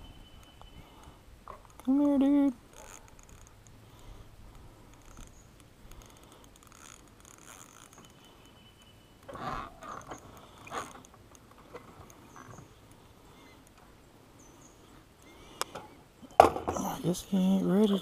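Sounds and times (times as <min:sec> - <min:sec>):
fishing reel clicking and ratcheting: 0:05.9 - 0:08.1.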